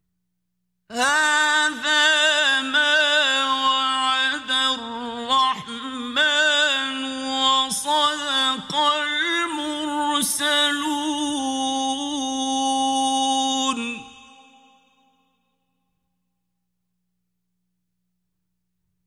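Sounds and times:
man chanting melodic recitation: 0.9 - 14.3.

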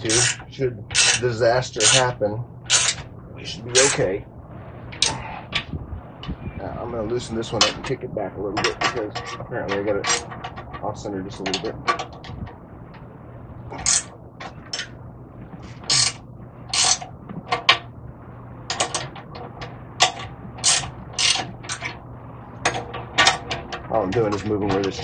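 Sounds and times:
faint low hum: 0.0 - 25.0
ratchet wrench clicking: 2.7 - 3.0, 15.9 - 16.2, 16.8 - 17.0.

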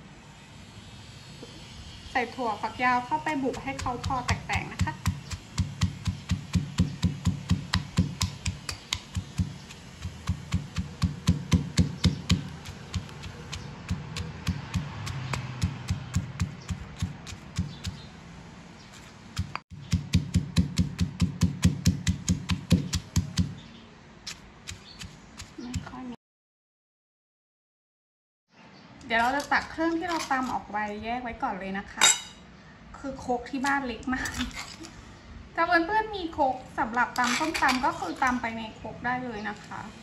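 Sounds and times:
pestle pounding in stone mortar: 3.4 - 18.1, 18.9 - 23.6, 24.3 - 25.9.

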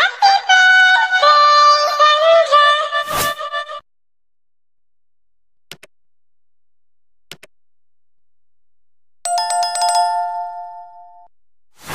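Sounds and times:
mouse clicks: 5.7 - 5.9, 7.3 - 7.6
notification bell sound effect: 9.3 - 11.3.

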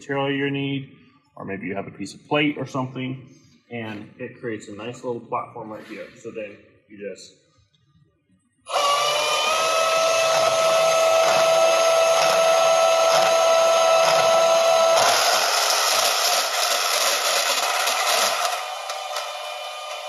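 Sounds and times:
band saw cutting metal: 8.7 - 20.0.

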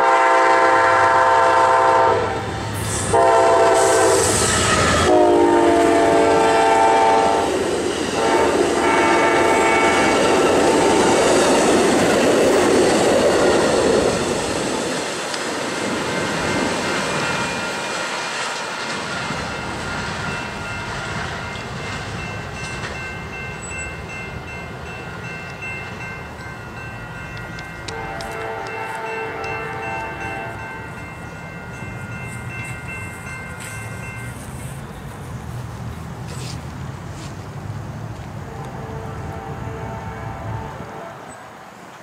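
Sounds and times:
train horn blasts: 0.0 - 7.6, 8.2 - 11.0, 27.8 - 30.8, 38.4 - 41.5
train wheels clicking over rails: 2.4 - 24.0, 27.2 - 38.4
crossing bells ringing: 15.8 - 18.2, 19.1 - 35.6.

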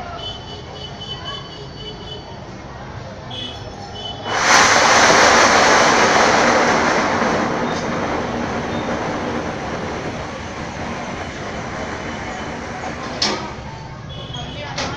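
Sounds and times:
fountain firework hissing: 3.6 - 14.2.

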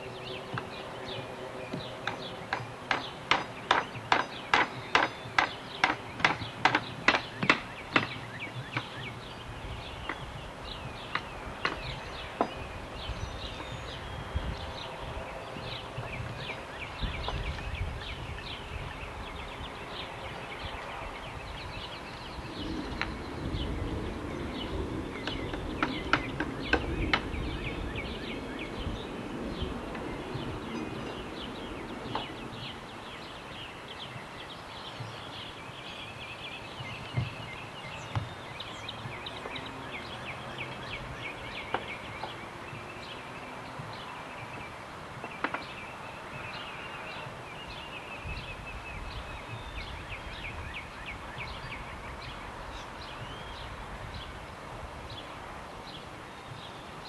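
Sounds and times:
birds chirping: 0.0 - 57.0
hammers knocking on wooden blocks: 1.8 - 8.9.

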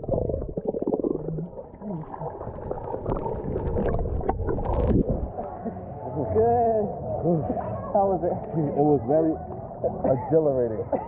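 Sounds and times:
water splash: 0.0 - 5.4
underwater gurgling bubbles: 0.0 - 5.7
low warbling underwater: 0.0 - 6.2.

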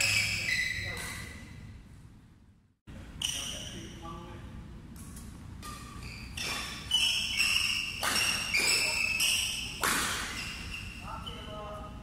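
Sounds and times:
shoes squeaking on court: 0.0 - 1.6, 3.2 - 4.0, 5.0 - 11.8
rackets hitting shuttlecock: 4.9 - 10.7.

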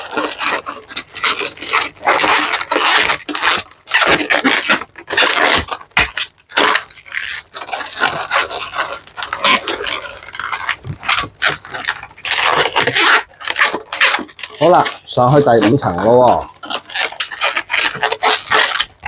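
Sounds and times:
balloons squeaking and rubbing: 0.0 - 19.0.

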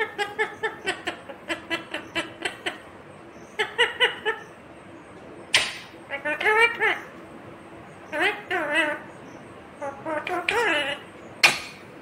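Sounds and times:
parakeet chattering: 0.0 - 4.6, 5.5 - 7.2, 8.0 - 11.9.

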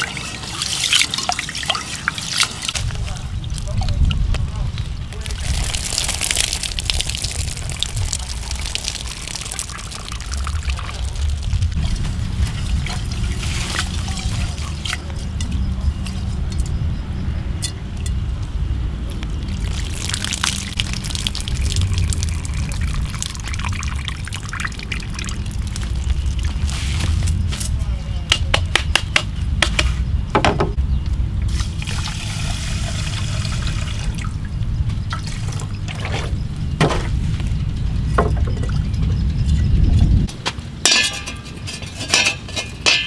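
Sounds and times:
steady low rumble: 2.7 - 41.9
water splashing onto leaves: 5.2 - 15.1, 19.4 - 27.3.

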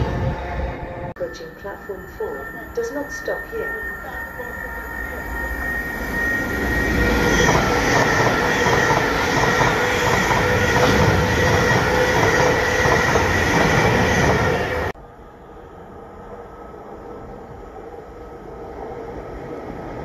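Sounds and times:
train wheels rushing on rail: 4.0 - 15.0.

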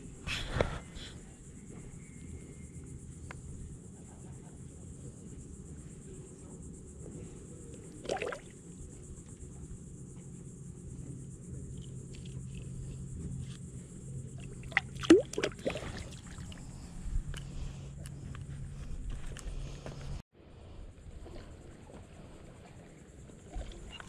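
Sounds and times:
fish splashing in shallow water: 8.0 - 8.6, 14.4 - 16.7.

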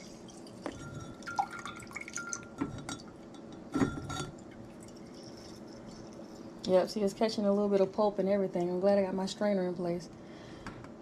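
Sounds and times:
juice dripping into a cup: 0.0 - 6.8.

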